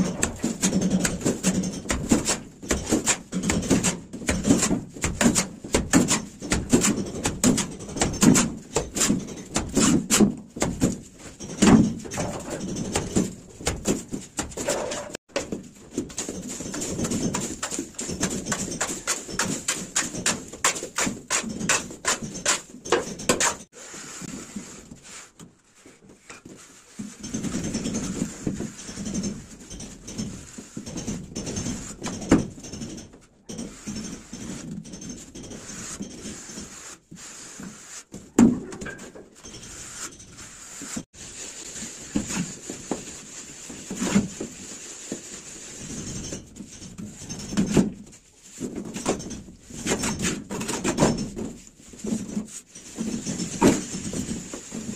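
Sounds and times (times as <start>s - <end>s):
trowel scraping mortar: 16.3s - 25.3s.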